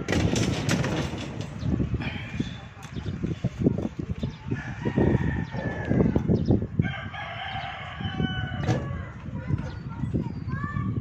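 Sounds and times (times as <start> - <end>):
rooster crowing: 4.6 - 9.1.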